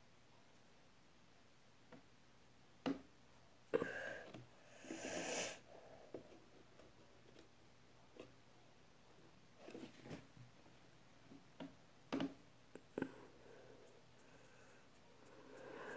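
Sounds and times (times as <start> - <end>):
rustling hiss: 4.6 - 5.7.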